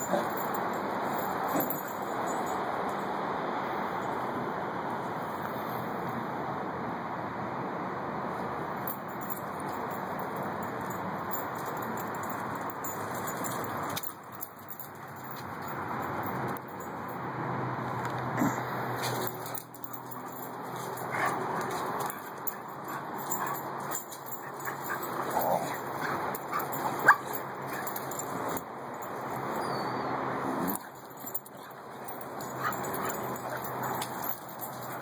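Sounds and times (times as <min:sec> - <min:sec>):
dogs crying while playing: 0:00.0 - 0:00.5, 0:19.5 - 0:28.6, 0:31.6 - 0:35.0.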